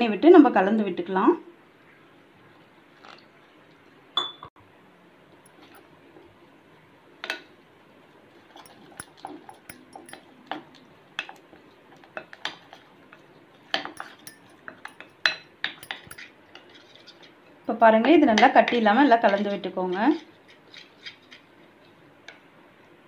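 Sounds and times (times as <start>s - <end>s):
metal spoon scraping glass bowl: 8.5s - 10.3s, 13.9s - 15.1s, 15.8s - 17.3s.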